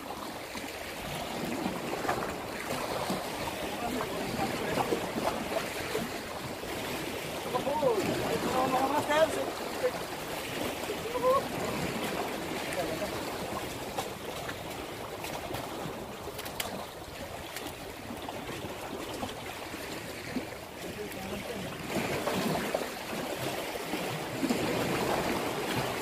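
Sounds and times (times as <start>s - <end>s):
sea water lapping against rocks: 0.0s - 26.0s
faint clicks: 16.3s - 16.8s.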